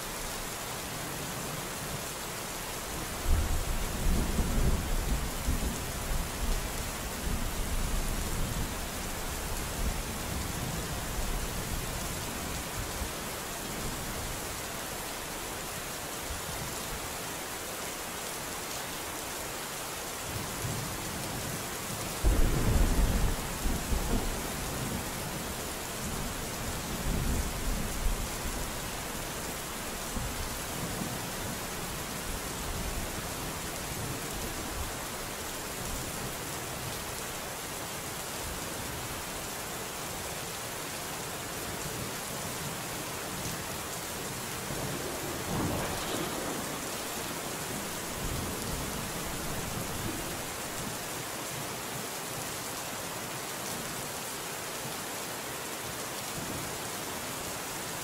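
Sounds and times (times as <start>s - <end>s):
steady rain falling: 0.0s - 58.0s
thunder rumbling: 22.2s - 25.2s, 44.5s - 50.7s.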